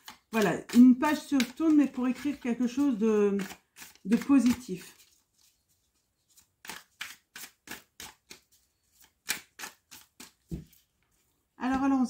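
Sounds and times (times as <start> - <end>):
cards being shuffled: 0.0 - 11.3.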